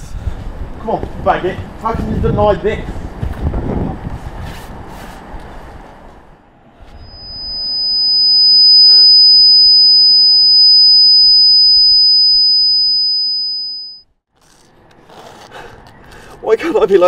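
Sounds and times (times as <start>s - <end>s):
high-pitched ringing tone: 6.8s - 14.1s.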